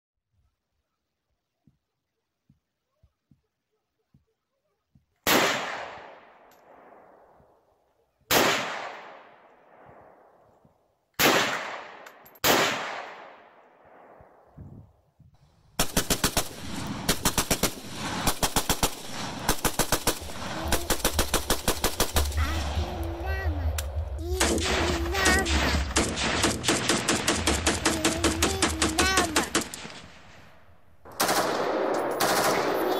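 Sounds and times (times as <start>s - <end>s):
echoing gunshots: 5.2s - 7.5s, 8.3s - 10.4s, 11.2s - 14.6s, 15.8s - 32.9s
machine-gun fire: 15.8s - 32.9s
low rumble: 19.0s - 27.6s.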